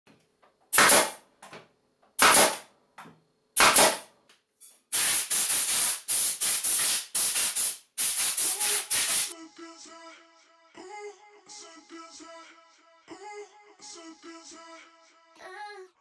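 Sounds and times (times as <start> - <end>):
compressed air blasts: 0.7 - 1.2, 2.2 - 2.6, 3.6 - 4.0, 4.9 - 9.4
nail gun firing: 0.7 - 1.2, 2.2 - 2.6, 3.6 - 4.1.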